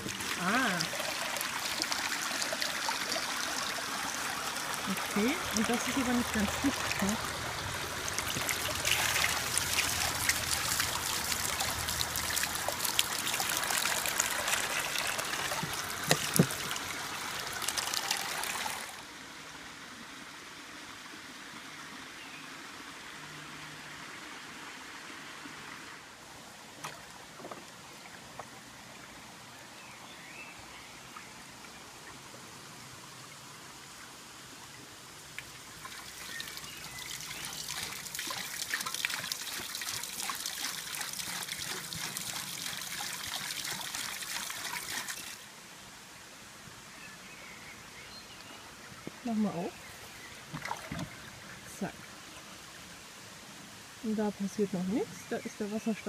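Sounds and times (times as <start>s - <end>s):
water running and trickling: 0.0s - 19.1s, 31.1s - 46.3s, 48.4s - 56.0s
small knocks: 15.6s - 16.7s.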